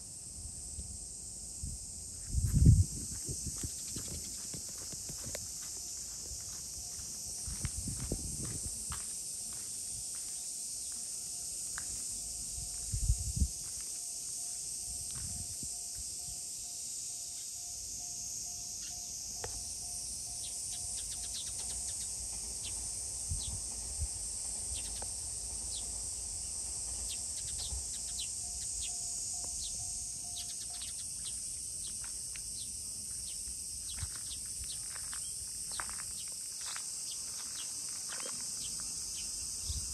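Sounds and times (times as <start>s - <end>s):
insect chorus: 0.0s - 39.9s
bird chirps: 20.4s - 22.8s, 27.1s - 32.0s.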